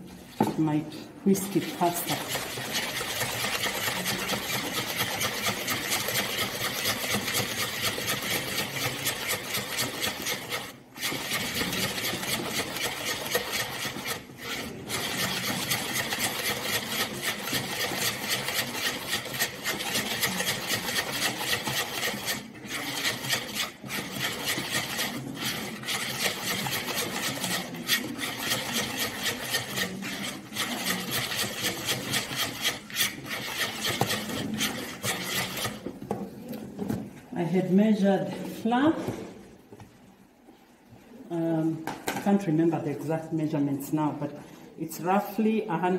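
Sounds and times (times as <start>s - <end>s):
hand whisk beating in bowl: 1.5s - 35.9s.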